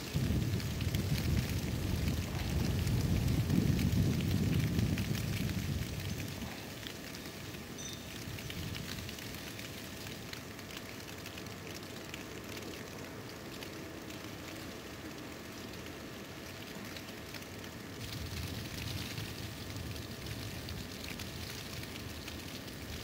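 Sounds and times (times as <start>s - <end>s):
wind-driven snow pattering: 0.0s - 23.0s.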